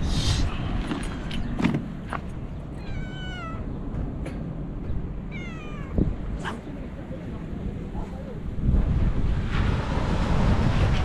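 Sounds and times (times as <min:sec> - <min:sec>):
wind noise on microphone: 0:00.0 - 0:04.1, 0:04.7 - 0:11.0
cat meowing: 0:02.8 - 0:03.7, 0:05.3 - 0:06.1.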